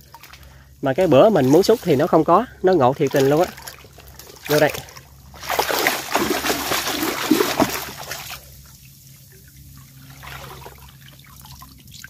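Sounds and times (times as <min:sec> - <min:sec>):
water trickling and dripping: 0:00.0 - 0:12.0
basket splashing through water: 0:02.9 - 0:08.6, 0:09.8 - 0:12.0.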